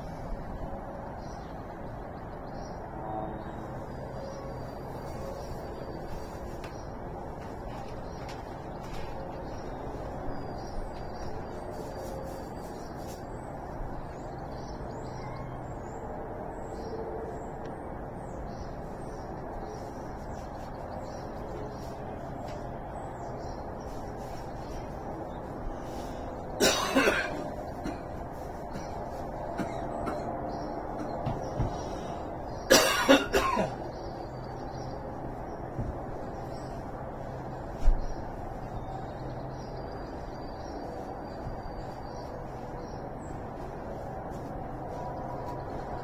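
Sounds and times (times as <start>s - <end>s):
faint birds chirping: 0.0s - 46.0s
person coughing: 26.6s - 28.0s, 32.7s - 33.8s.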